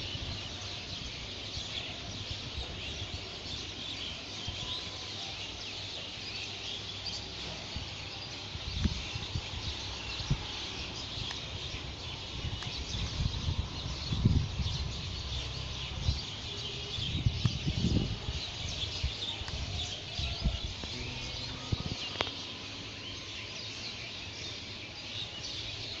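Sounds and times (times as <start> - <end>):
small birds chirping: 0.0 - 26.0
microphone rumbling bumps: 19.6 - 22.4.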